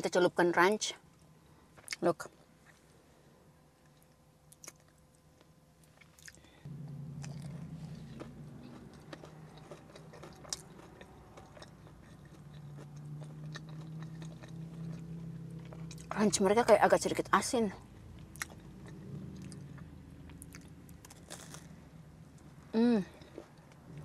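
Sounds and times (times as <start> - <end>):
low steady hum: 0.0 - 24.0
person chewing food: 3.8 - 16.1, 18.2 - 21.7.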